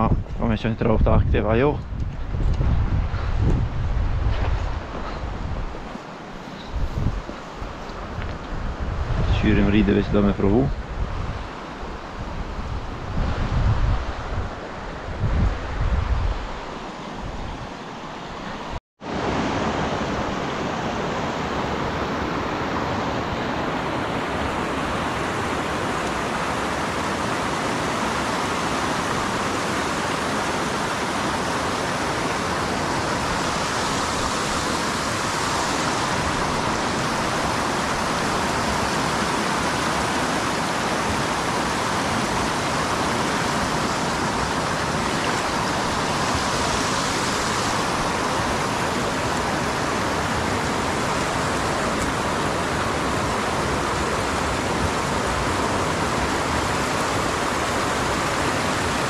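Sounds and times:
river water rushing over rocks: 16.4s - 59.0s.

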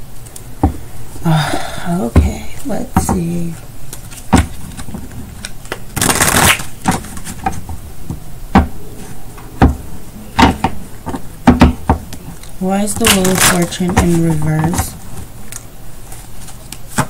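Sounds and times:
cards riffling: 3.9s - 7.6s.

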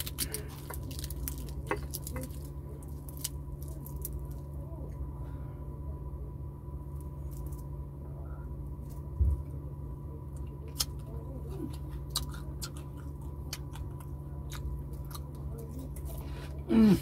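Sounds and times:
person chewing: 0.0s - 4.5s, 10.4s - 17.0s
crispy fish crackling: 0.0s - 4.6s
low hum: 0.0s - 17.0s.

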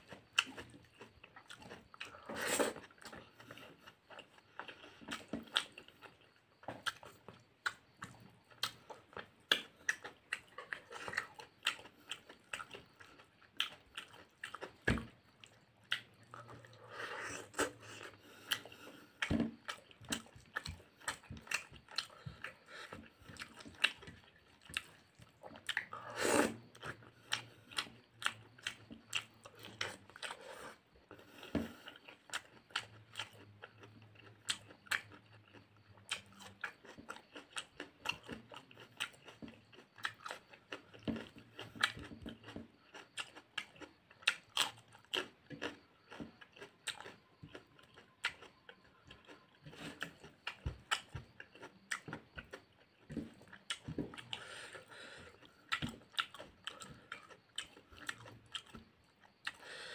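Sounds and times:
close chewing mouth clicks: 15.4s - 59.8s.

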